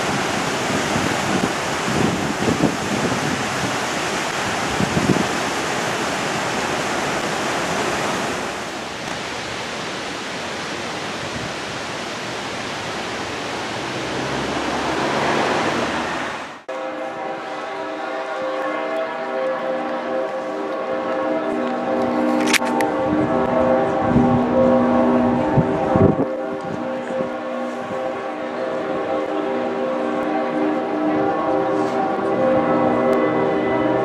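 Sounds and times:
wind gusts on microphone: 0.0s - 8.6s, 22.6s - 29.2s
outdoor rushing noise: 12.4s - 16.7s
steady pitched tone: 14.3s - 34.0s.

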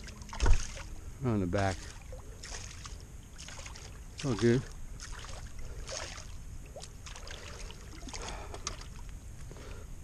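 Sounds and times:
low steady rumble: 0.0s - 10.0s
short splashes: 0.3s - 0.9s, 1.7s - 8.9s
water lapping on rocky shore: 1.5s - 9.1s.

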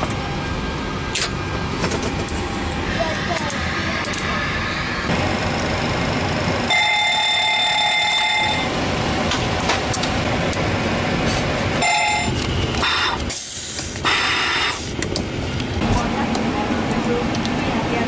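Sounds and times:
cockpit air and fan noise: 0.0s - 18.0s
fire warning alarm ringing: 5.1s - 9.2s, 11.8s - 13.2s.

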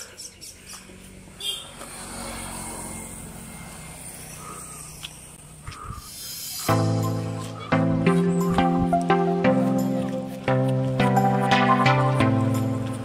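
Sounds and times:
vehicle engine passing: 0.8s - 8.4s.

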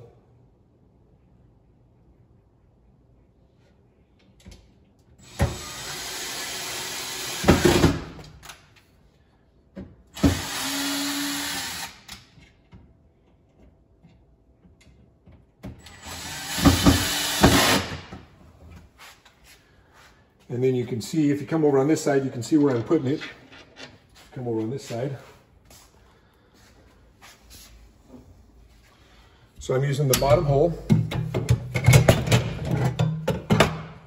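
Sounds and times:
cordless drill driving screws: 5.2s - 7.9s, 10.2s - 12.1s, 15.8s - 18.0s.

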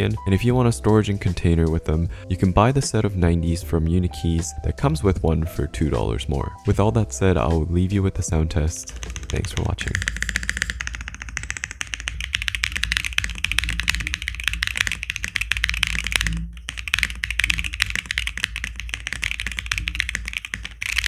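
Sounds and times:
mechanical keyboard typing: 8.7s - 21.0s.

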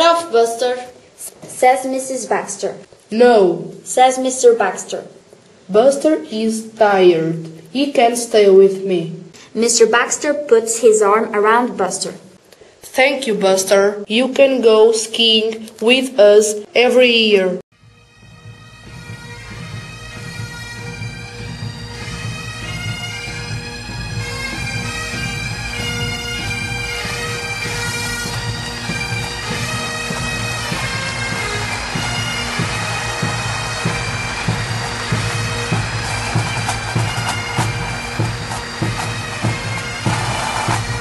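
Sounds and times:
bagpipe music: 17.8s - 41.0s.

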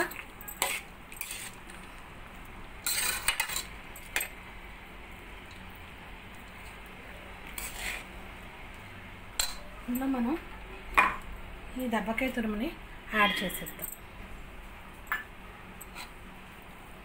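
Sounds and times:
metal spatula scraping a pan: 0.6s - 1.6s, 2.8s - 3.7s, 7.5s - 8.1s.

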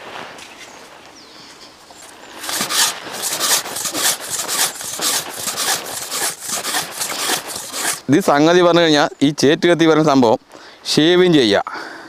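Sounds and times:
knife rasping on wooden paddle: 2.4s - 8.0s.

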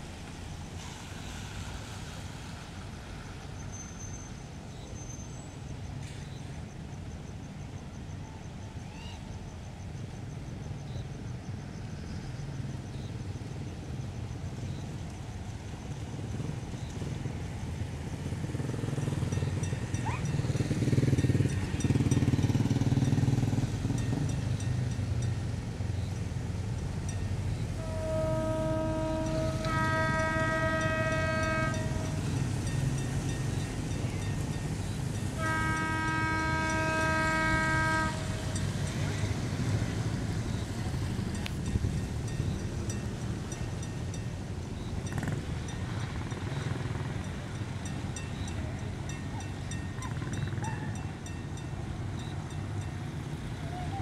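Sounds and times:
tyres hissing on wet road: 0.0s - 49.1s
bus engine running: 9.6s - 54.0s
locomotive air horn chord: 27.7s - 33.2s, 35.3s - 39.4s.

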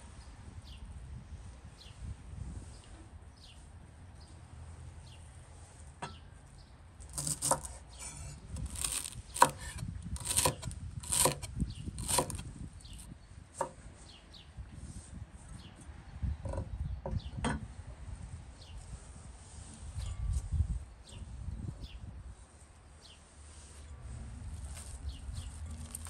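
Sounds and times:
knife chopping on wooden board: 7.2s - 7.8s, 8.7s - 12.4s.

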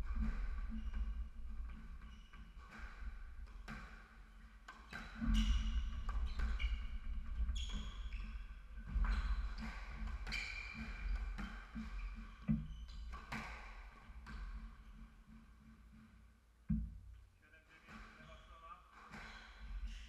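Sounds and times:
shoe squeaks: 4.9s - 13.6s, 18.0s - 20.0s.

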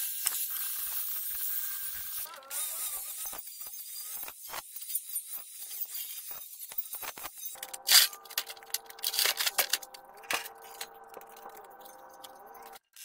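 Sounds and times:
angle grinder motor whine: 7.6s - 12.8s.

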